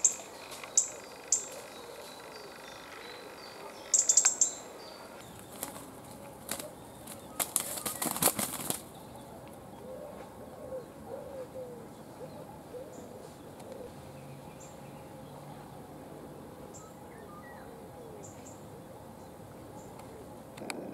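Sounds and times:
low bird calls: 0.0s - 14.9s
pigeon wings flapping: 5.4s - 8.9s.

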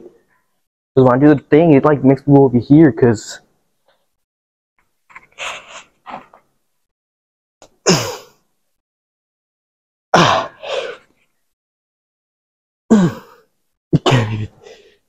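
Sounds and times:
man grunting with effort: 10.1s - 10.7s, 12.9s - 13.4s.

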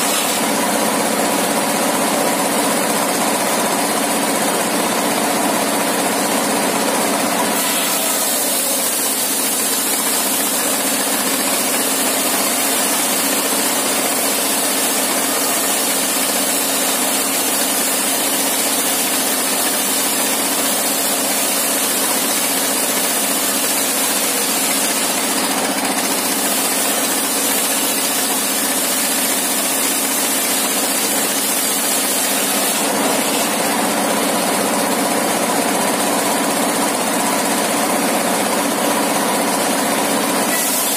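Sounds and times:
saw blade cutting wood: 0.0s - 1.2s, 7.4s - 33.9s, 40.4s - 40.9s
engine running: 0.0s - 40.9s.

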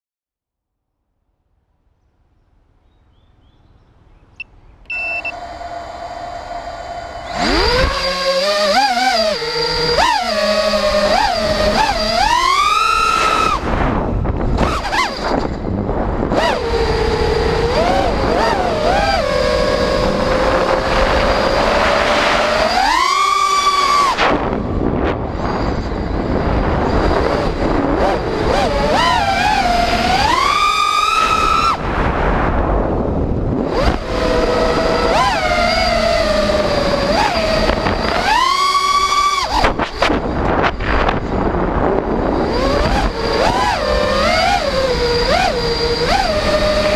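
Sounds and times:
drone motors whining: 3.3s - 46.9s
rushing wind noise: 7.3s - 46.9s
rush of air: 13.0s - 18.4s, 19.4s - 28.9s, 31.2s - 34.9s.

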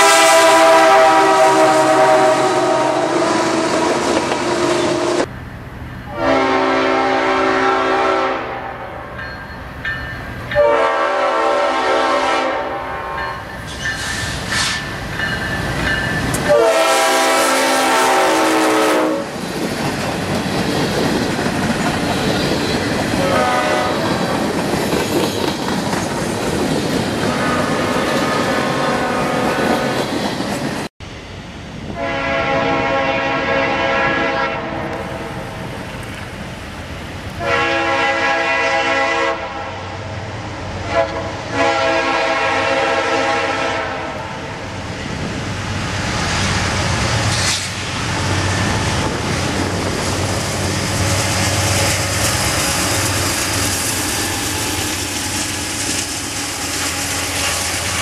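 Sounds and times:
locomotive horn blasts: 0.0s - 5.3s, 6.1s - 9.1s, 10.6s - 13.4s, 16.4s - 19.4s, 23.2s - 24.3s, 27.2s - 29.8s, 32.0s - 35.3s, 37.4s - 39.9s, 40.8s - 44.4s
diesel locomotive engine rumble: 0.0s - 58.0s
train rolling clatter: 4.1s - 4.6s, 13.2s - 16.6s, 19.2s - 28.5s, 46.6s - 58.0s.

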